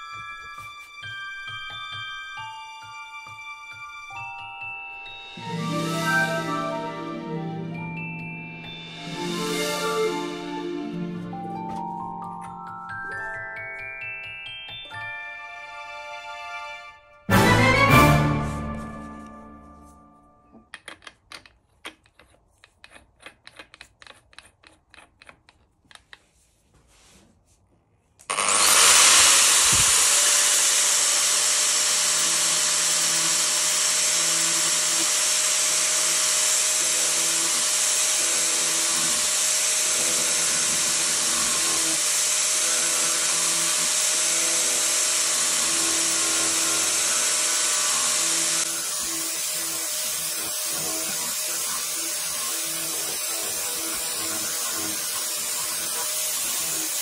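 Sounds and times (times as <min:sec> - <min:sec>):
angle grinder grinding wood: 0:28.2 - 0:57.0.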